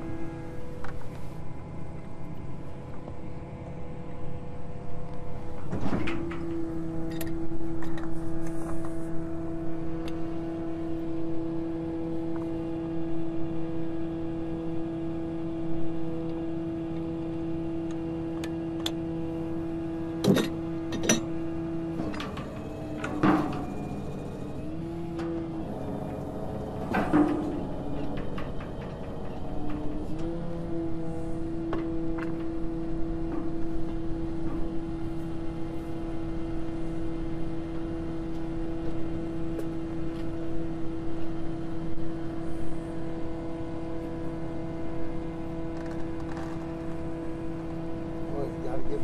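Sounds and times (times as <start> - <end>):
truck engine and hydraulic hoist: 5.2 - 11.2, 16.0 - 48.2.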